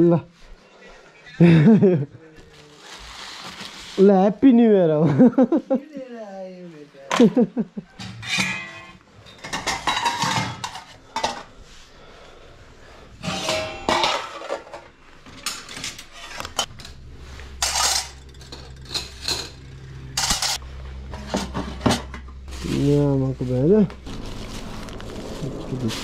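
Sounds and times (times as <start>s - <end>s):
dishes and cutlery clattering: 8.0s - 11.5s, 13.2s - 16.9s, 17.6s - 22.2s
low steady hum: 8.2s - 26.0s.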